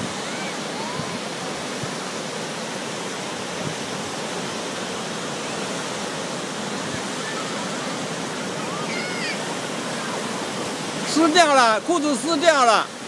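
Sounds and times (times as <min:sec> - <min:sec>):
ocean surf breaking on beach: 0:00.0 - 0:13.0.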